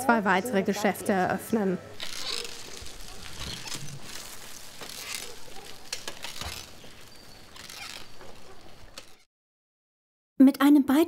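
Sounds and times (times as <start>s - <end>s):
scattered crackles: 2.0s - 9.3s.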